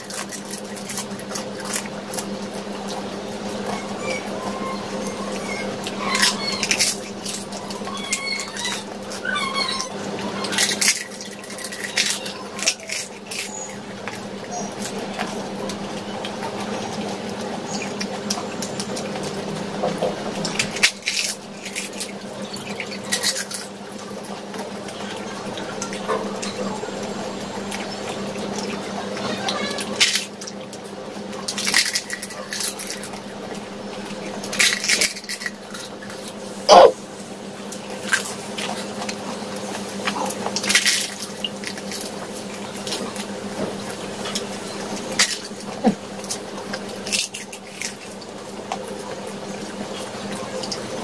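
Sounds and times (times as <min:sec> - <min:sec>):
crisp shells cracking and crunching: 0:00.0 - 0:03.0, 0:05.1 - 0:15.4, 0:20.4 - 0:23.8, 0:31.4 - 0:33.3, 0:34.4 - 0:36.4
wet chewing and squishing: 0:00.0 - 0:36.9, 0:37.7 - 0:51.0.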